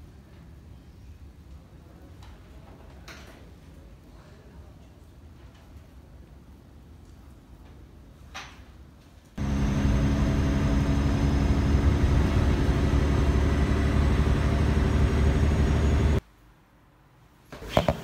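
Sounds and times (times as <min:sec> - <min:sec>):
vehicle engine hum: 0:09.4 - 0:16.2.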